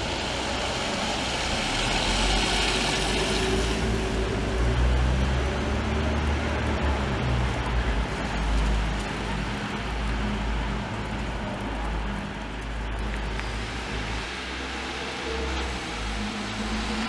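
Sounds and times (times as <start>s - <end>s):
city bus engine pulling away: 0.0s - 9.3s
traffic passing on wet street: 0.0s - 17.0s.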